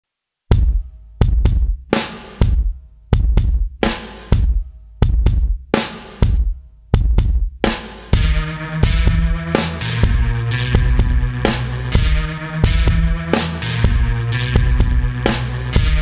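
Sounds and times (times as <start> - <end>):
heavy drum hits with crash: 0.5 - 9.4, 10.0 - 13.2
held bass note: 8.2 - 16.0
synth chords: 8.2 - 16.0.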